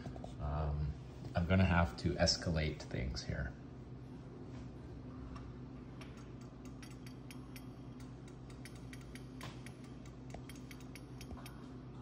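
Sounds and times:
steady low hum: 0.0s - 12.0s
metallic clicks and ticks: 6.0s - 11.7s.

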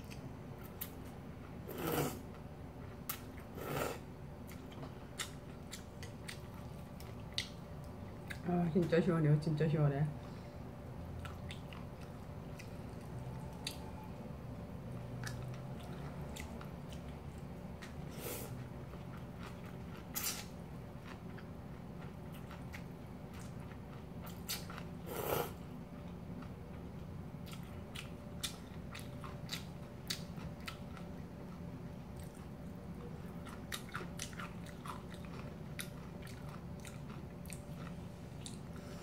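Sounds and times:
steady low hum: 0.0s - 39.0s
chewing with wet mouth clicks: 4.4s - 8.4s, 11.2s - 13.9s, 15.2s - 18.0s, 18.9s - 24.9s, 27.4s - 38.7s.

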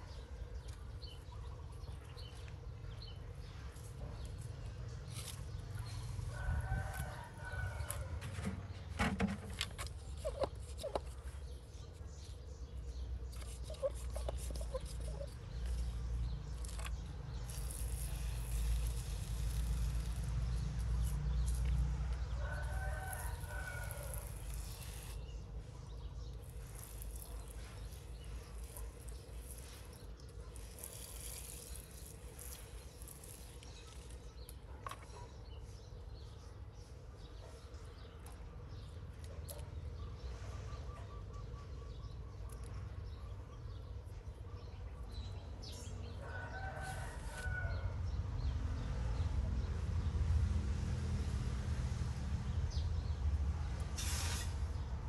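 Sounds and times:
rooster crowing: 46.2s - 48.0s
pressure sprayer hissing: 54.0s - 54.5s.

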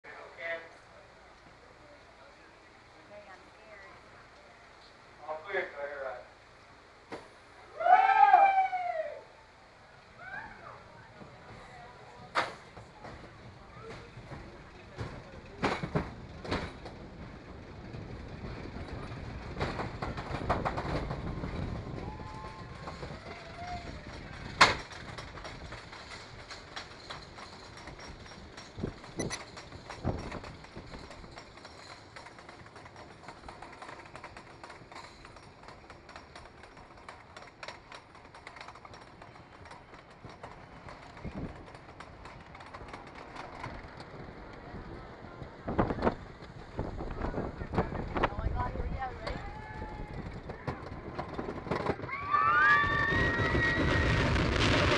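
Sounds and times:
roller coaster wheels rumbling: 0.1s - 54.9s
track clacks and knocks: 11.1s - 54.9s.

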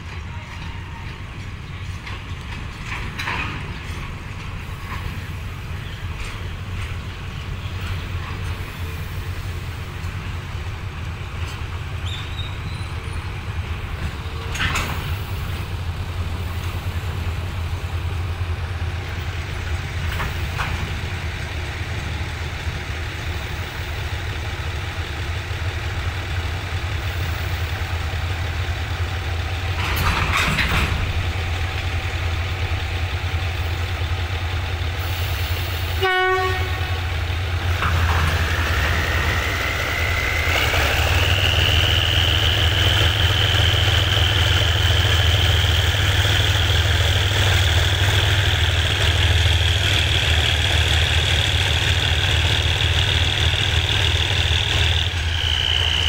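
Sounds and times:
diesel locomotive engine running: 0.0s - 56.0s
locomotive horn toot: 35.9s - 37.2s.

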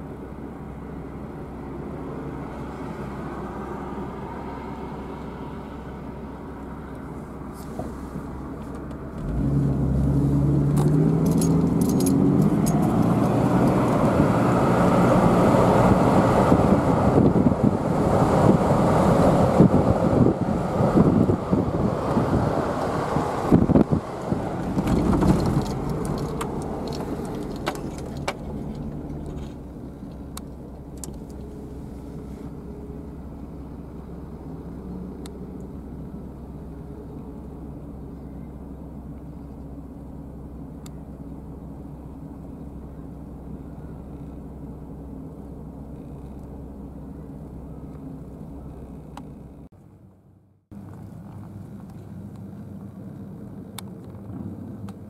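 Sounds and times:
low engine drone: 0.0s - 55.0s
wind buffeting microphone: 12.4s - 28.8s.

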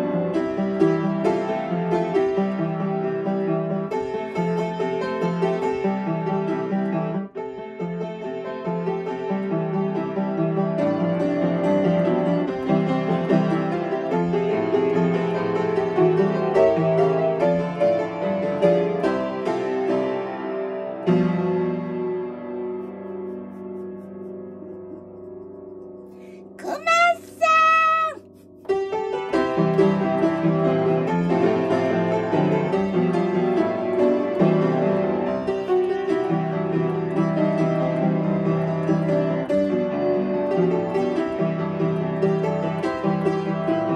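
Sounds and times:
upright piano melody: 0.0s - 27.9s, 28.6s - 43.9s
solo piano playing: 28.4s - 43.9s.

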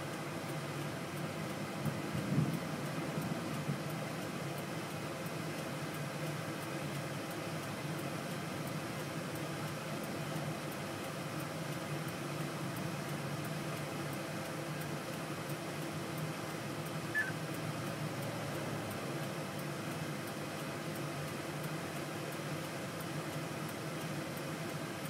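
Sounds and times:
vehicle cabin hum: 0.3s - 25.0s
short high chirp: 17.1s - 17.4s.

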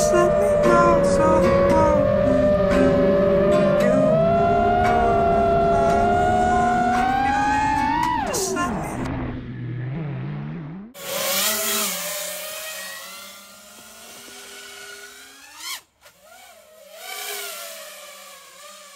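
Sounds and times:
drone motors whining: 0.0s - 18.9s.

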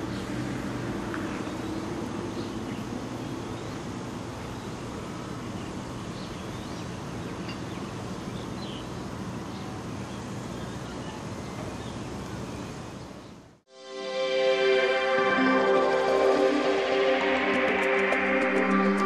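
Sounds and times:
locomotive engine drone: 14.0s - 19.0s.

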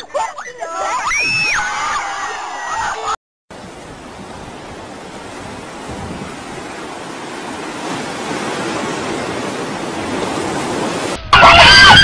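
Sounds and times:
surf breaking on rocks: 3.5s - 11.6s
wind on microphone: 3.6s - 11.2s.

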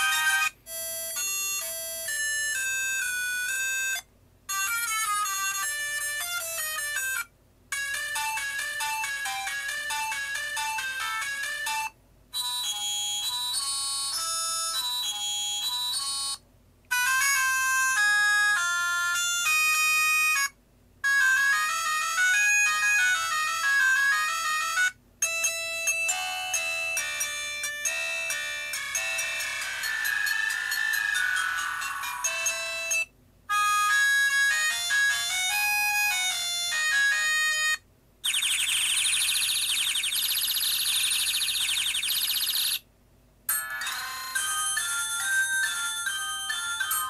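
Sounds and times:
electronic phone ringtones: 0.0s - 5.9s, 21.1s - 37.4s, 38.2s - 42.8s
alarm-like electronic warble: 28.8s - 32.9s, 38.3s - 42.8s.

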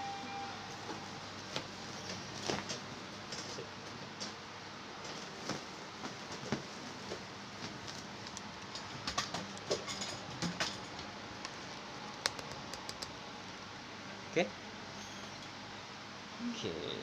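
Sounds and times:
steady background hiss: 0.0s - 17.0s
handling clicks and taps: 11.4s - 13.1s.

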